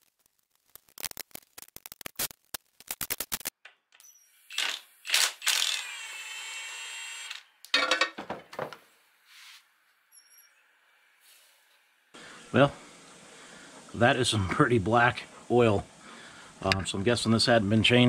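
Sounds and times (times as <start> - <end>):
metal clanks: 7.7 - 8.4.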